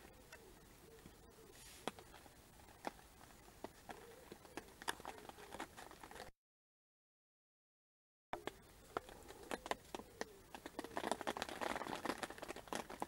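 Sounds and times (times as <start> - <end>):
low steady hiss: 0.0 - 5.8, 8.4 - 11.3.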